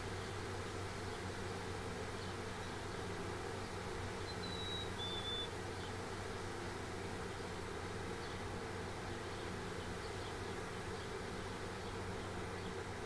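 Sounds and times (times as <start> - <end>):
low buzzing hum: 0.0 - 13.0
songbird whistled notes: 4.3 - 5.5.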